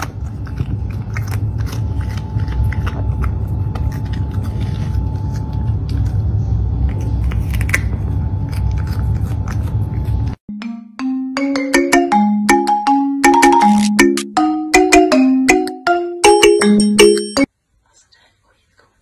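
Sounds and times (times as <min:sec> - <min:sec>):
cat crunching cucumber: 0:00.0 - 0:10.4
steady low hum: 0:00.0 - 0:10.4.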